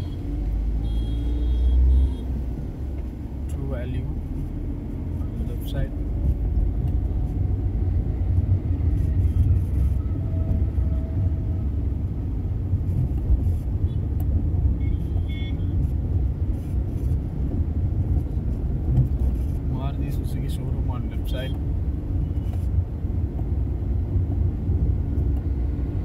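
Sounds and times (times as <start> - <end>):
road and engine rumble in car: 0.0 - 26.0
faint high beep: 0.8 - 2.3.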